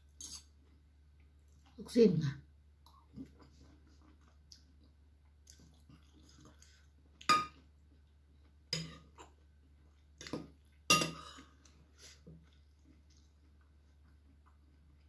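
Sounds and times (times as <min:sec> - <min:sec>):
cutlery clinking on ceramic dish: 0:08.8 - 0:09.0, 0:10.2 - 0:11.4.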